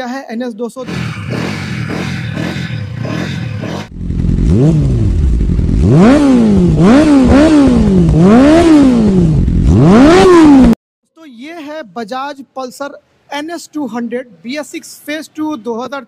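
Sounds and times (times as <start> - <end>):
motorcycle engine revving: 0.8 - 10.8.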